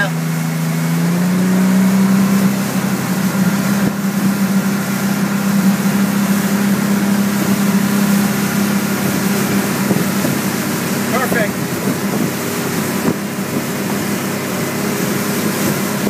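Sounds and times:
outboard motor droning: 0.0 - 16.0
rush of boat wake: 0.0 - 16.0.

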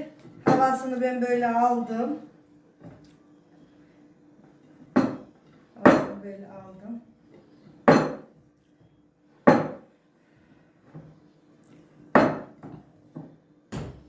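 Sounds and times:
glass bowl knocking on wooden table: 9.5 - 9.8, 12.2 - 12.8.

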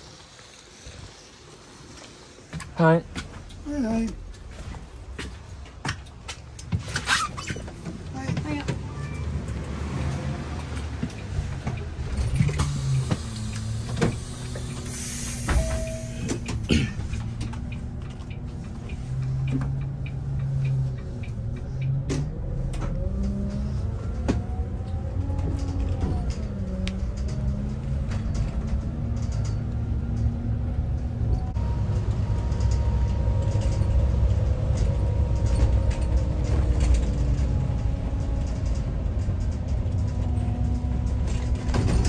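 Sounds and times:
bus engine low hum: 0.0 - 42.0
bus whine: 0.0 - 42.0
short hiss: 12.8 - 16.0.

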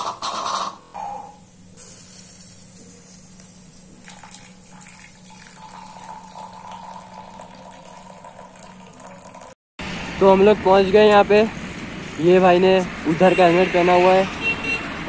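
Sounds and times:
coffee pouring into mug: 3.9 - 9.6.

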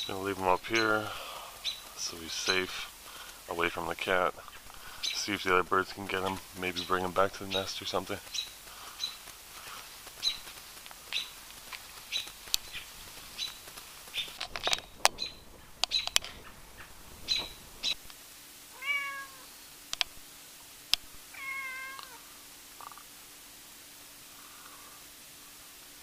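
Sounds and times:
high bird chirps: 1.6 - 2.0, 6.3 - 9.2, 10.2 - 10.5, 11.1 - 11.4, 12.1 - 18.0
cat meowing: 18.7 - 19.5, 21.3 - 22.2.

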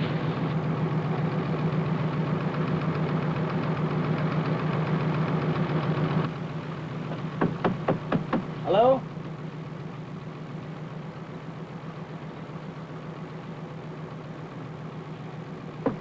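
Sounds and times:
engine running with fast pulse: 0.0 - 16.0
sharp knocks: 7.1 - 8.6, 15.8 - 16.0.

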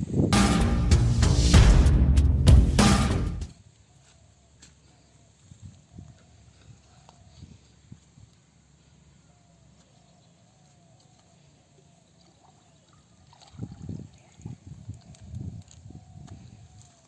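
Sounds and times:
water sloshing and splashing: 12.1 - 15.7.

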